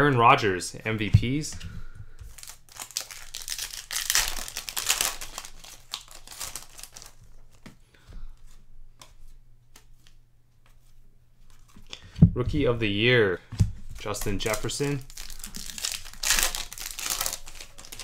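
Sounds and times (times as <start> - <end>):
foil wrapper crinkling and tearing: 2.3 - 7.6, 14.0 - 18.0.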